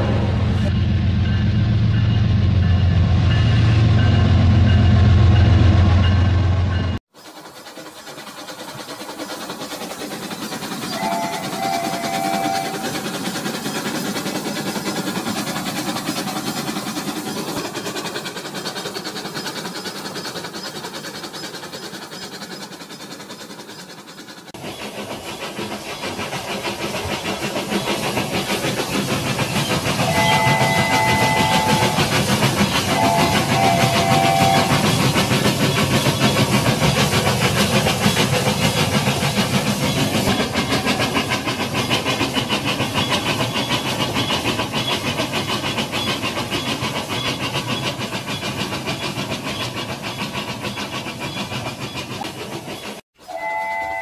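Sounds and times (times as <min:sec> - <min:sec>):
toy train steam chuffing: 0:05.9 - 0:54.0
train whistle: 0:10.9 - 0:13.0, 0:30.0 - 0:32.2, 0:32.8 - 0:34.9, 0:53.2 - 0:54.0.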